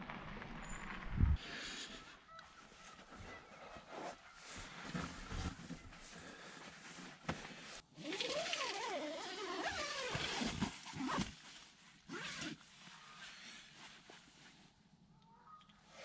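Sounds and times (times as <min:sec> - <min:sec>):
tent fabric rustling: 0:02.6 - 0:14.7
zipper rasping: 0:08.0 - 0:11.3, 0:12.1 - 0:12.6.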